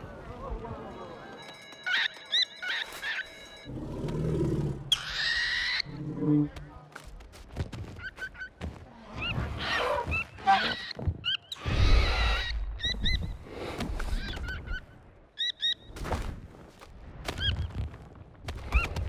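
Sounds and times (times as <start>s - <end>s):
high-pitched bird calls: 1.8s - 3.4s.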